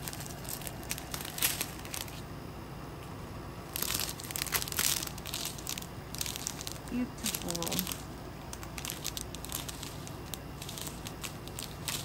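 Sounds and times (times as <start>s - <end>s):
plastic packets crinkling: 0.0s - 2.2s, 3.7s - 12.0s.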